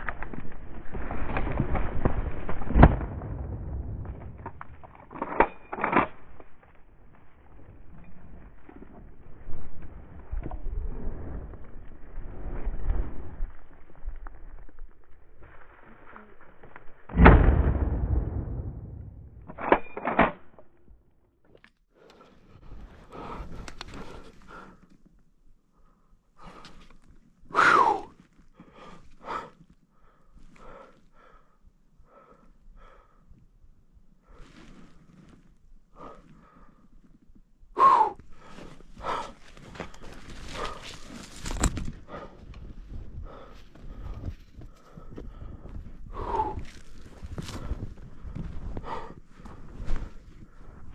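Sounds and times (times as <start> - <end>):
rifle shot echoing: 17.1 - 19.4
person breathing hard: 21.9 - 25.0, 25.6 - 33.5, 35.9 - 50.9
footsteps in snow: 34.3 - 36.4, 38.3 - 45.2, 46.2 - 50.9.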